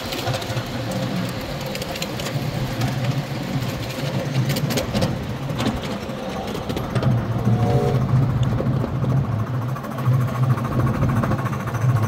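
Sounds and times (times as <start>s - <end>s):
miniature steam train rumbling: 0.0s - 12.0s.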